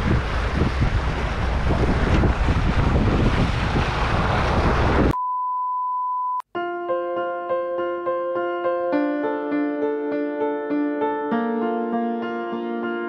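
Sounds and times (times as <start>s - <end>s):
wind buffeting microphone: 0.0s - 5.2s
high-pitched beep: 5.2s - 6.4s
electric piano music: 6.6s - 13.0s.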